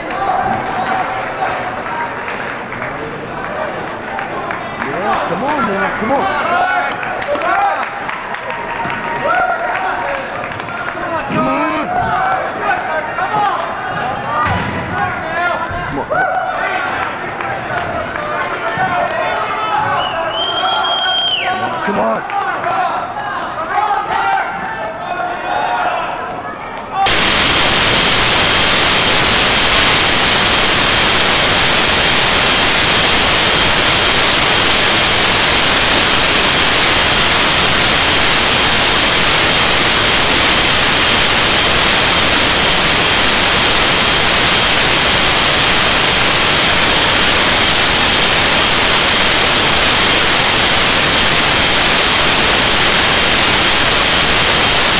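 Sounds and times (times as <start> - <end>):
loud static hiss: 27.0 - 54.9.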